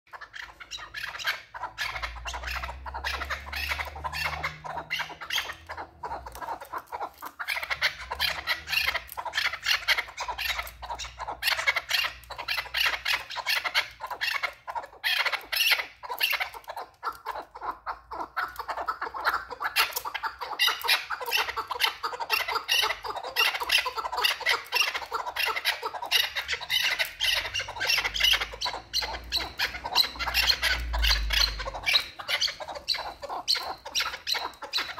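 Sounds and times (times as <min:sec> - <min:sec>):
partridges calling: 0:00.1 - 0:34.9.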